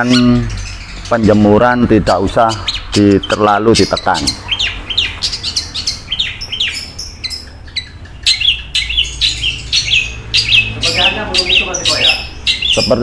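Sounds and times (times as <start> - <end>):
bird chirping sharply: 0.0 - 13.0.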